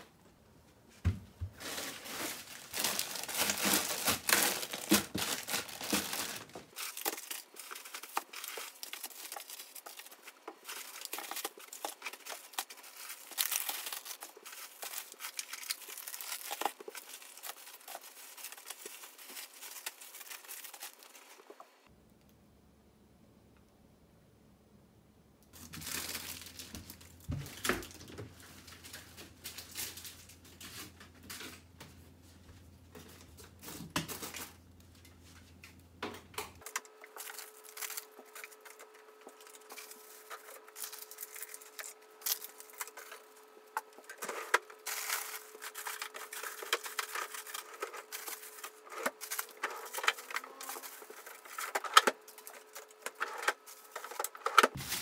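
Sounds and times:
packages knocking: 0:01.1 - 0:09.9
plastic bags crinkling: 0:01.5 - 0:21.6, 0:25.6 - 0:31.4, 0:36.6 - 0:55.0.

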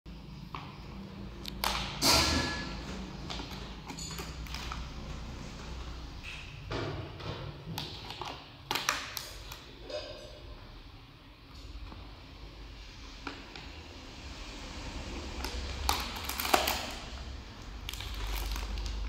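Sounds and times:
plastic packets crinkling: 0:07.8 - 0:09.8, 0:15.2 - 0:19.0.

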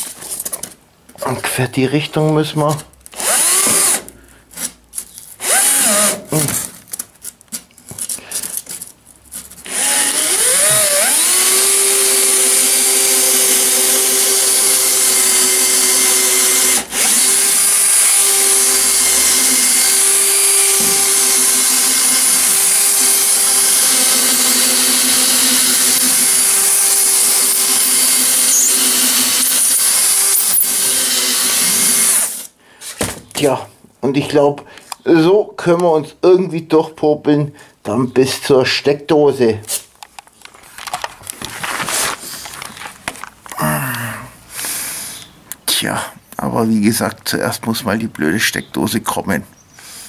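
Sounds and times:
cordless drill boring through polystyrene: 0:03.1 - 0:04.0, 0:05.4 - 0:06.2, 0:09.6 - 0:32.5.

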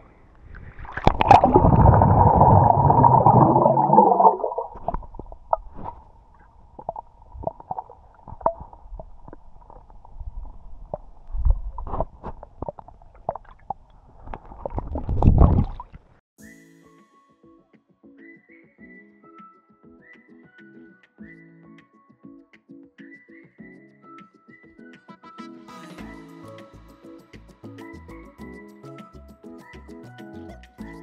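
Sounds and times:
churning rush of bubbles: 0:00.5 - 0:05.8, 0:06.6 - 0:16.0
small clicks and knocks underwater: 0:04.7 - 0:16.2.

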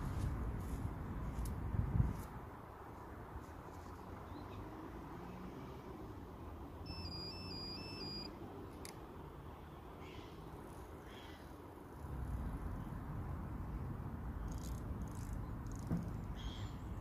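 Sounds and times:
wind rumble on microphone: 0:00.0 - 0:03.6.

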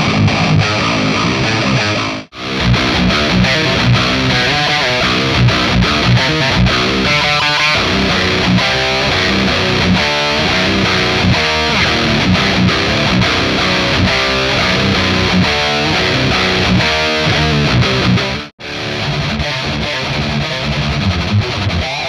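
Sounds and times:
distorted electric guitar riff: 0:00.0 - 0:22.0.

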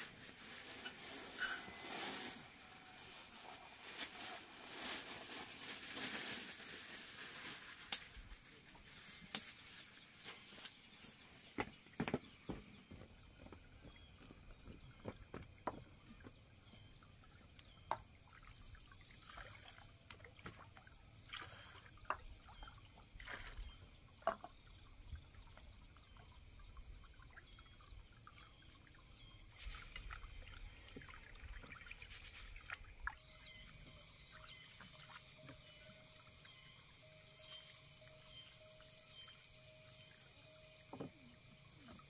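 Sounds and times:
water dribbling and splashing: 0:15.0 - 0:36.2.

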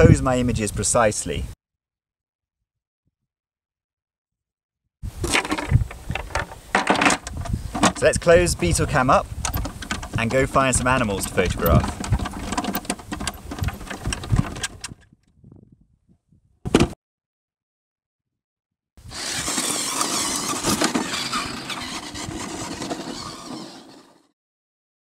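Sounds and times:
wheels over dirt and grass: 0:05.1 - 0:15.0, 0:19.0 - 0:24.3
toy car motor whirring: 0:09.5 - 0:12.9, 0:19.0 - 0:24.3.

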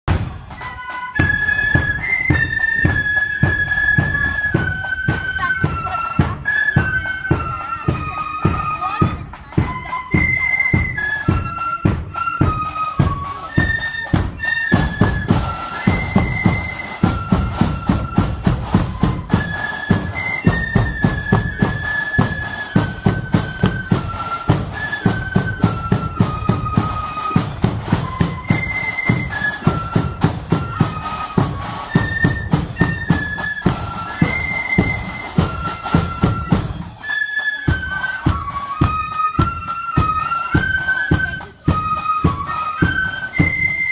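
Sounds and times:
steady drum beat: 0:00.1 - 0:06.4, 0:07.0 - 0:37.0
flutes playing high melody: 0:00.1 - 0:43.9.

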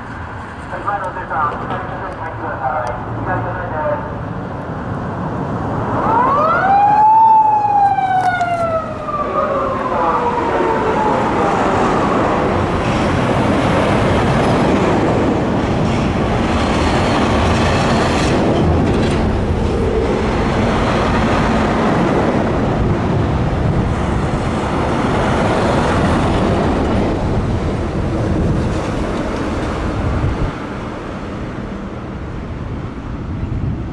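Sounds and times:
road noise of moving cars: 0:00.0 - 0:33.9
police siren wail: 0:05.9 - 0:12.8.

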